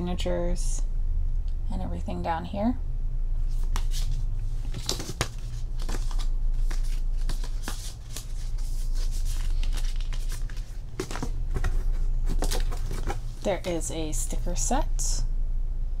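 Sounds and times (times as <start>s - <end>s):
steady low hum: 0.0s - 16.0s
cardboard and paper rustling: 3.5s - 13.9s.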